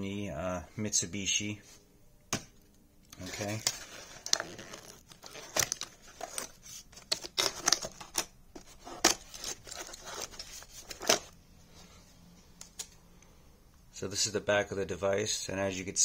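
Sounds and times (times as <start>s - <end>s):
cardboard scraping and rustling: 3.2s - 11.4s.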